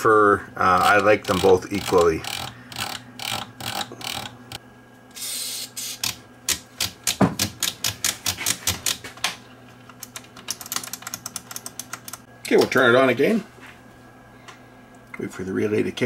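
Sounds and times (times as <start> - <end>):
switches clicking: 6.0 - 12.8.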